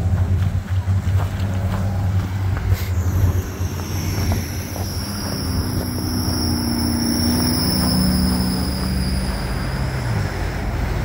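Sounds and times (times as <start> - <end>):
traffic engine hum: 0.0 - 11.0
low gliding tone: 2.0 - 11.0
high whine falling in pitch: 2.8 - 10.7.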